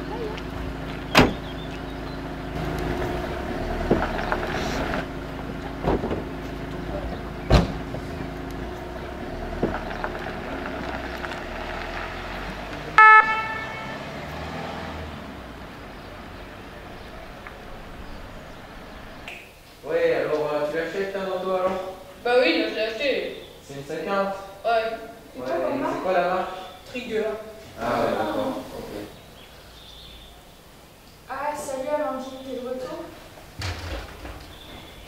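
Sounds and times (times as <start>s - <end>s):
diesel engine idling: 0.0s - 22.9s
van doors thumping shut: 0.5s - 1.8s, 2.6s - 11.0s, 33.6s - 35.0s
short horn toot: 13.0s - 14.2s.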